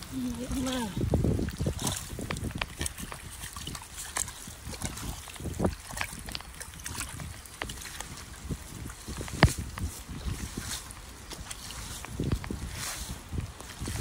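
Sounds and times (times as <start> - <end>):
small splashes in puddle: 0.0 - 14.0
water trickling from drain pipe: 0.0 - 14.0.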